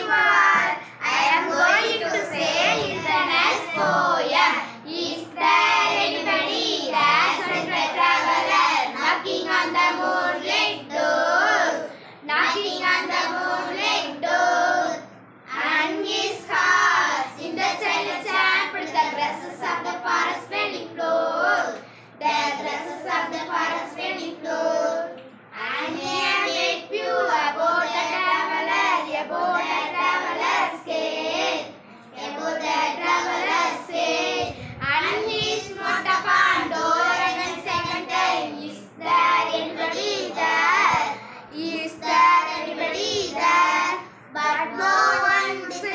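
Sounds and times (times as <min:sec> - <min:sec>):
girls reciting in chant: 0:00.0 - 0:45.9.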